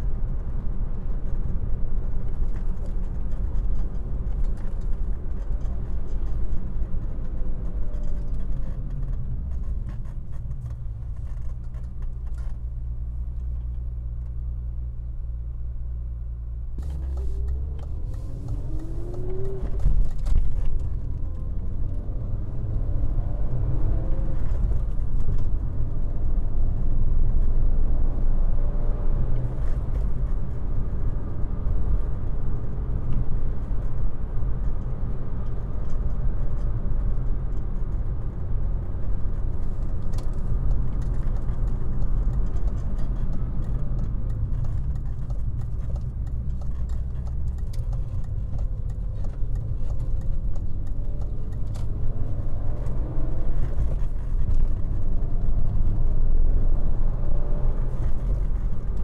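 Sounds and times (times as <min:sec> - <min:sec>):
road noise: 0:00.0 - 0:59.0
car engine revving: 0:16.8 - 0:25.2.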